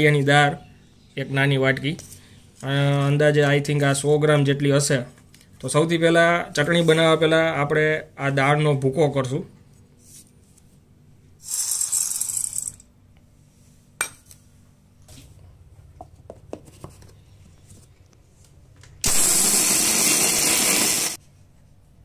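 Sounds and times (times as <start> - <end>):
mixer grinder running loudly: 19.0 - 21.2.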